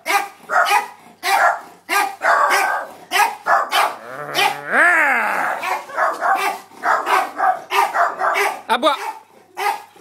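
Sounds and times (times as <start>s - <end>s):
terriers barking: 0.1s - 9.9s
dog whining cry: 3.7s - 6.2s.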